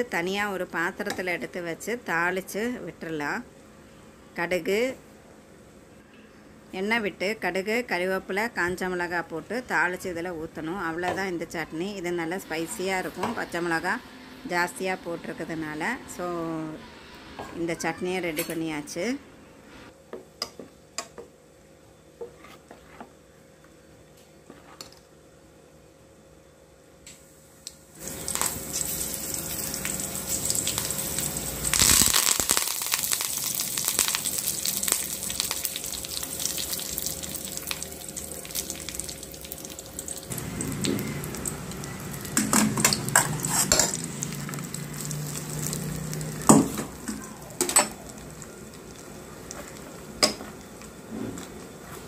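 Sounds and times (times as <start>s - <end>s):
hot oil sizzling: 12.3s - 17.6s, 27.1s - 52.0s.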